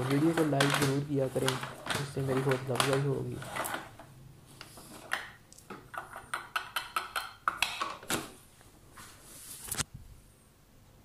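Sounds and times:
food chopper plastic clacks: 0.0 - 3.8.

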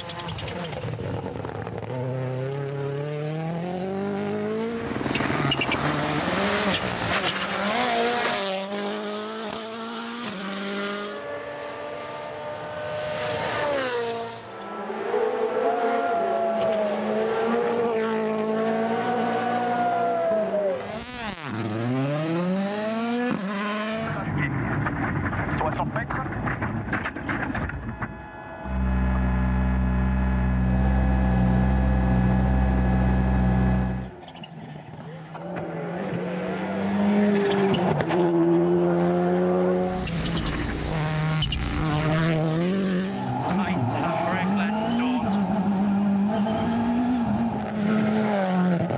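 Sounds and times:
rally car engine revving: 0.0 - 48.9
gear change: 27.0 - 34.2.

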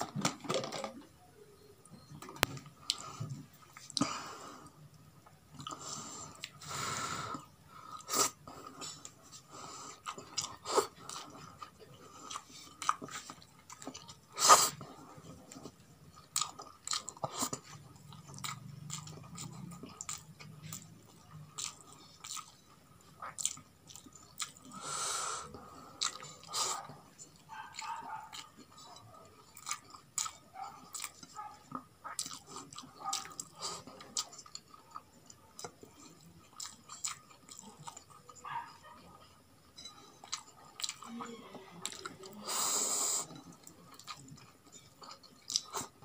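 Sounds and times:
chewing and biting chicken: 9.9 - 24.7, 26.0 - 29.0, 29.6 - 39.2.

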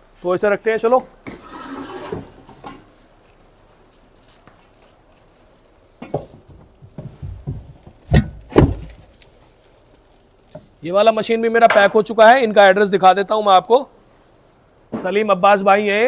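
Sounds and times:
scraping rustle: 1.1 - 11.4
knocks and thuds on wood: 6.0 - 9.1.

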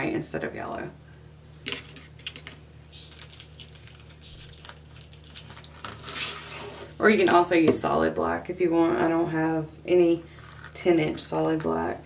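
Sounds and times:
plastic mesh rustling and crinkling: 2.2 - 6.9.

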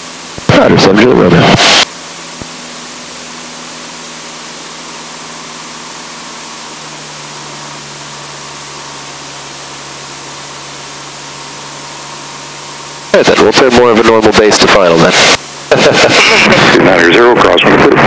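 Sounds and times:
aircraft engine drone: 0.0 - 18.0
intercom hiss: 13.1 - 18.0.

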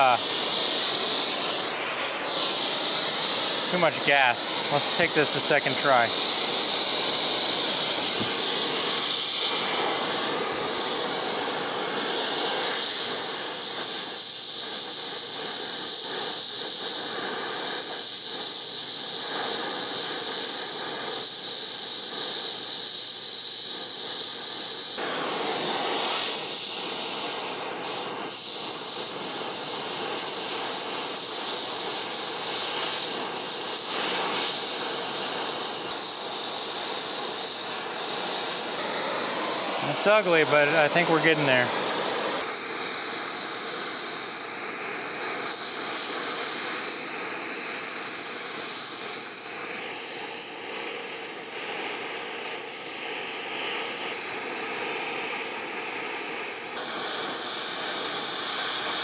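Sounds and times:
torch flame hissing: 0.0 - 59.0.

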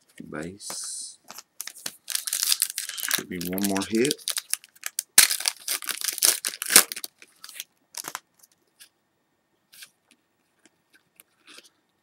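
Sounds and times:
cards rustling: 1.3 - 8.2
foil wrapper crinkling: 1.3 - 8.2.

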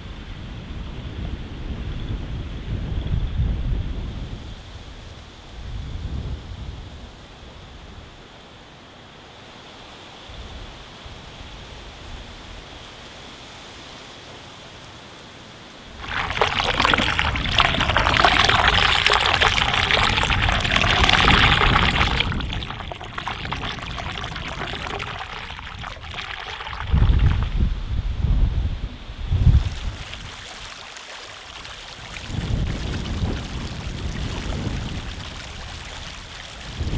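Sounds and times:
water rushing down a whirlpool: 16.0 - 27.7, 29.3 - 36.9
wind buffeting microphone: 16.0 - 30.6, 32.0 - 36.9.

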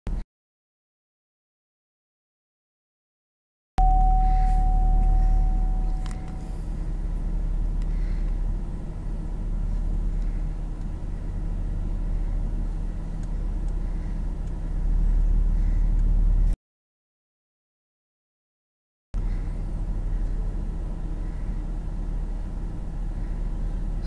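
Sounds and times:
thin steady tone: 3.8 - 7.6
vehicle rumbling inside cabin: 3.8 - 16.6, 19.2 - 24.0.

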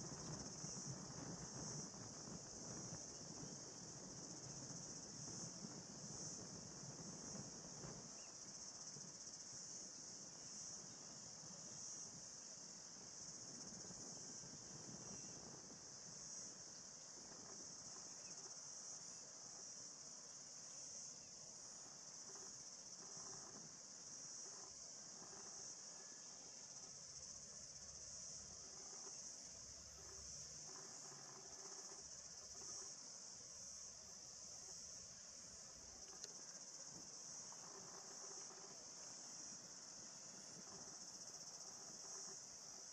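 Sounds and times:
insects chirring: 0.0 - 42.9
faint click: 36.0 - 36.4.

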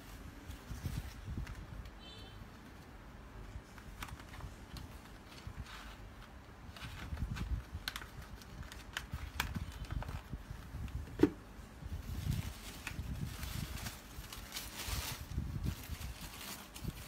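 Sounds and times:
tissue paper crinkling: 3.7 - 10.4, 11.9 - 17.0.

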